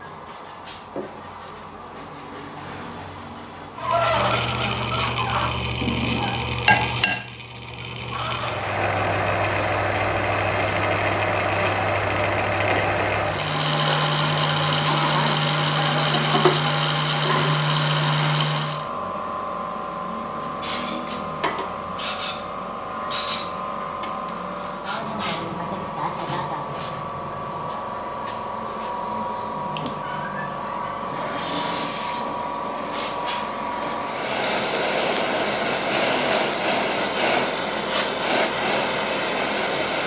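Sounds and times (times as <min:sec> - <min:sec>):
metal lathe motor hum: 0:03.8 - 0:20.1, 0:31.0 - 0:40.0.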